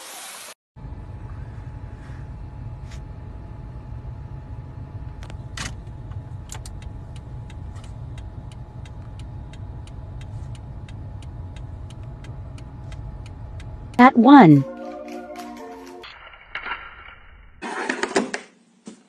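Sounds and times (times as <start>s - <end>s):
car engine idling: 0.8s - 14.0s
even ticking: 6.5s - 14.2s.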